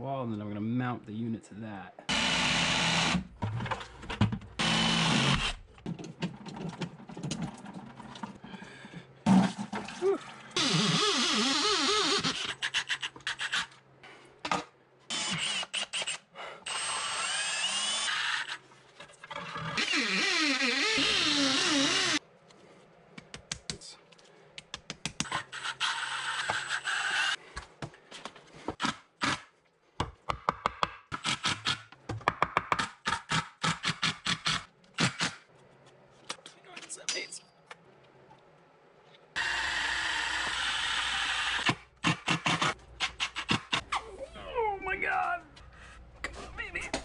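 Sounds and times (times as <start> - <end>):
drill boring into concrete: 2.1 - 3.2, 4.6 - 5.6, 10.6 - 12.5, 15.1 - 18.6, 19.8 - 22.2, 39.4 - 42.7.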